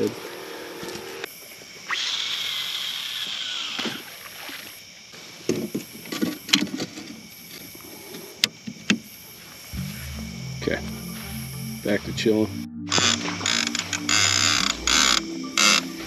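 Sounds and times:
fishing reel spool whirring: 1.9s - 4.1s, 12.9s - 16.0s.

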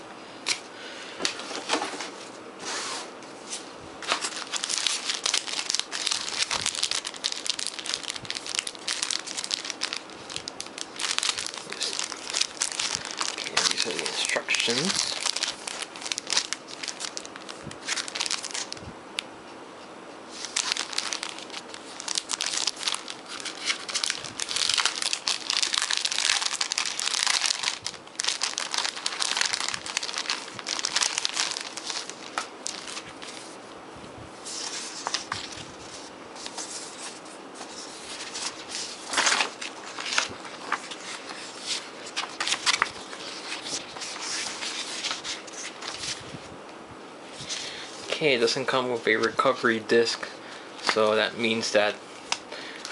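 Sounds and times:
paper leaflets rustling: 3.5s - 18.8s, 20.3s - 33.6s, 34.4s - 46.4s, 50.8s - 52.9s
plastic bag crinkling: 4.0s - 18.8s, 20.3s - 33.6s, 34.5s - 46.4s.

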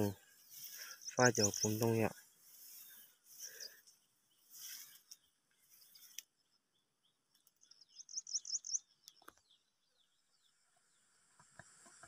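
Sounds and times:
small bird singing: 0.0s - 12.0s.

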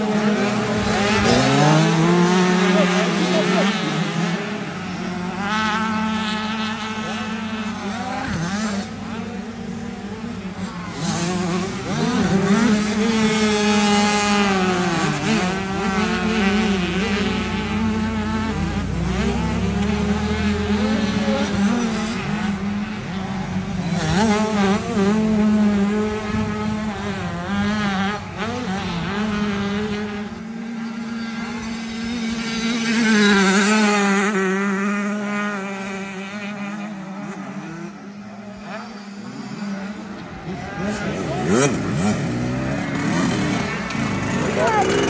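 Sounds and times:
motocross bike engines revving: 0.0s - 45.0s.

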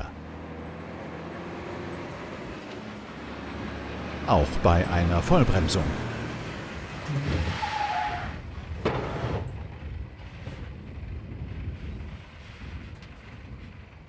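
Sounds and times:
truck brake and tyre noise: 0.0s - 14.0s
brake squeal: 5.0s - 9.6s
low steady rumble: 8.3s - 14.0s.

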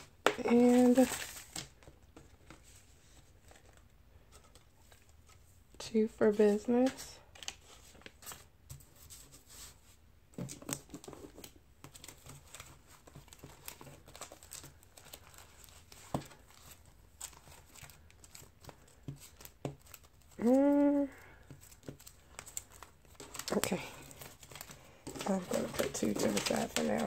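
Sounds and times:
paper bills rustling: 0.0s - 3.8s, 10.7s - 27.0s.

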